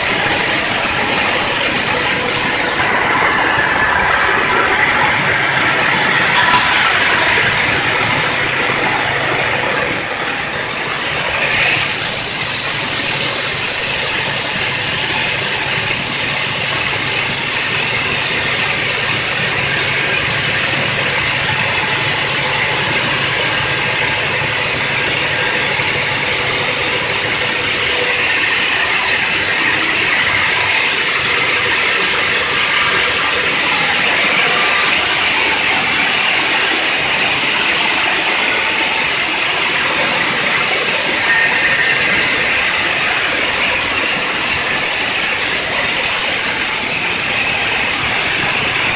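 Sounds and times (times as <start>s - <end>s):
machine hum: 0.0s - 48.9s
saw blade grinding stone: 39.6s - 48.9s.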